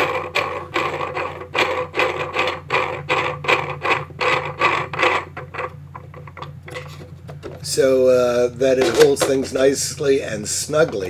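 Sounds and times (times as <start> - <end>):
plastic threads rasping: 0.0 - 7.8.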